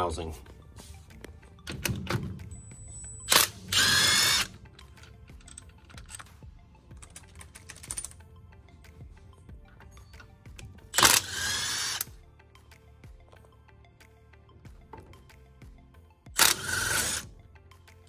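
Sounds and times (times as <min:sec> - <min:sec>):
impact wrench hammering whir: 0:03.2 - 0:04.6, 0:11.0 - 0:12.1, 0:16.4 - 0:17.3.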